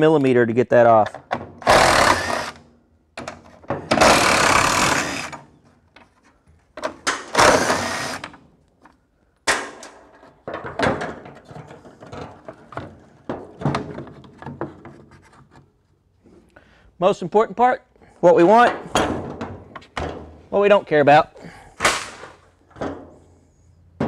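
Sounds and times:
cordless drill spinning: 1.6s - 2.6s, 4.0s - 5.4s, 7.4s - 8.2s.

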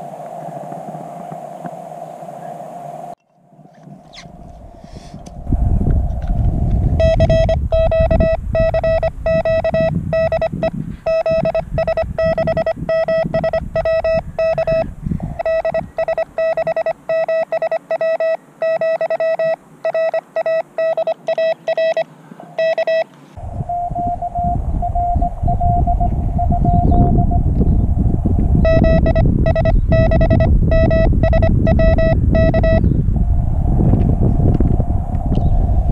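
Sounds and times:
radio receiver hiss: 0.0s - 3.2s
steady radio tone: 0.0s - 3.2s, 4.0s - 27.5s, 28.5s - 32.9s
morse code beeps: 7.0s - 23.1s, 23.7s - 27.4s, 28.6s - 32.9s.

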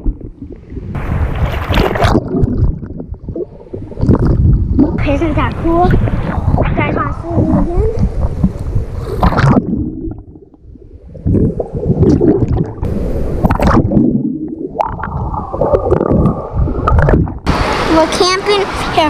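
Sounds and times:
water sloshing and gurgling: 0.0s - 19.0s.

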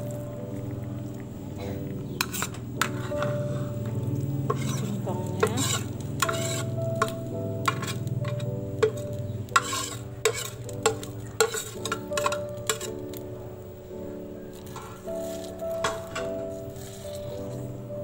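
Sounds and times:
syrup bubbling on the boil: 0.0s - 18.0s
spoon scraping plastic bowl: 2.1s - 3.4s, 4.4s - 13.0s.

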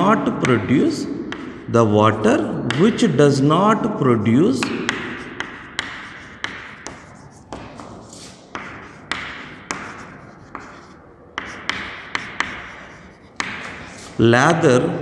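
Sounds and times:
chalk tapping and scratching: 4.5s - 14.3s.

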